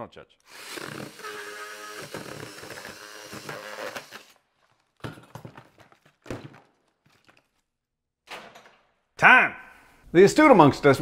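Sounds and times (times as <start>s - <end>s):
multi-tool buzzing through plastic: 0.4s - 4.5s.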